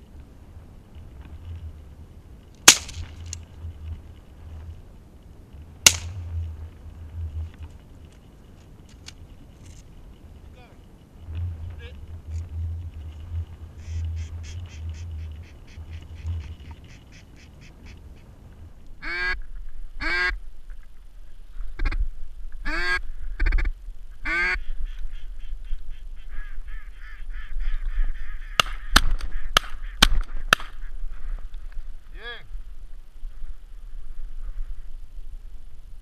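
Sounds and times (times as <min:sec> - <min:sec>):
ducks quacking: 0:11.3 - 0:18.3, 0:19.0 - 0:19.4, 0:20.0 - 0:20.4, 0:22.6 - 0:31.4
soft duck chatter: 0:11.5 - 0:18.3.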